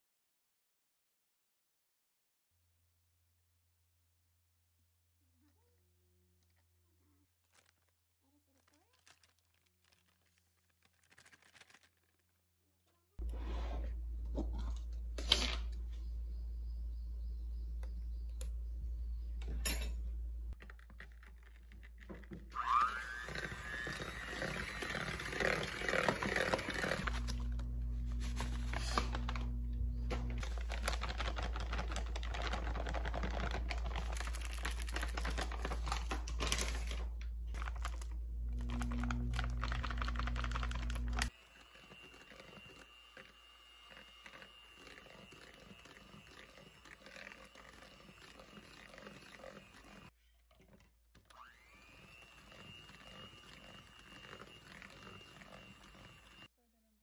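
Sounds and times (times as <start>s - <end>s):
electric hand mixer running: 22.2s - 36.1s, 37.6s - 50.2s, 51.3s - 56.5s.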